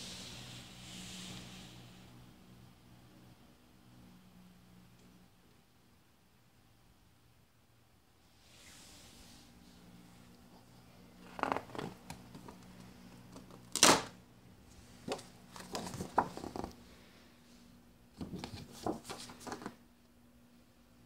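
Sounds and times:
handling rustles and knocks: 14.8s - 16.8s.

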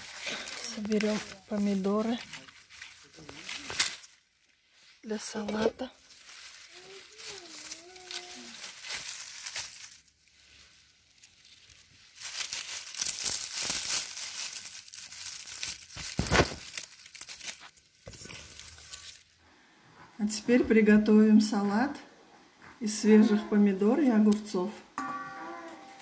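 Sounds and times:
plant leaves rustling and crackling: 0.0s - 19.5s.

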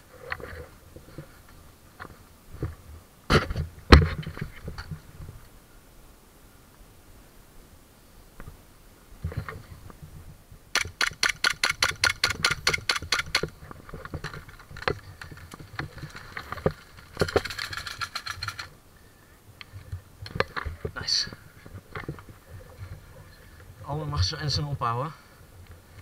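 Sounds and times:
rustling through brush: 8.5s - 23.9s
airsoft gun firing: 10.8s - 13.5s.

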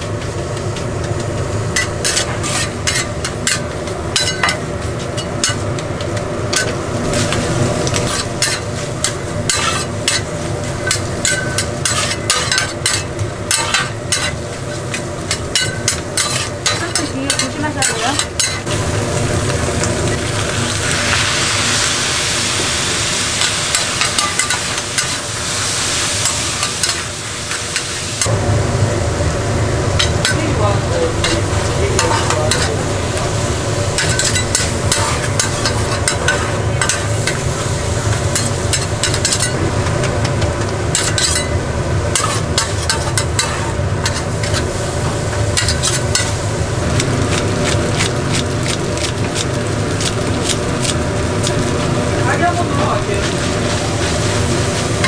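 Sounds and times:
food sizzling: 0.0s - 55.0s
metal spatulas scraping a pan: 1.8s - 5.6s, 6.5s - 18.7s, 23.4s - 25.3s, 34.0s - 37.5s, 38.1s - 39.6s, 40.9s - 44.7s.

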